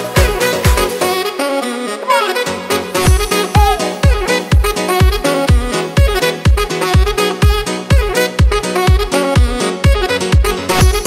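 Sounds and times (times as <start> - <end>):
steady drum beat: 3.1 - 4.8.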